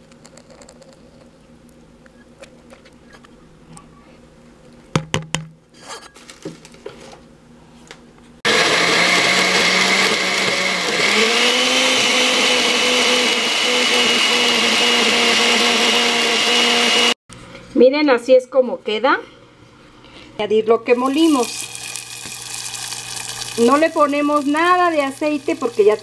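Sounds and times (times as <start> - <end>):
blender grinding: 8.5 - 17.2, 21.0 - 26.0.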